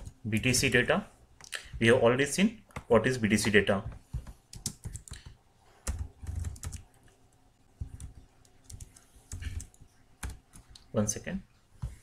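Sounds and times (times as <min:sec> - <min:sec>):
keyboard typing: 0:02.7 - 0:10.9.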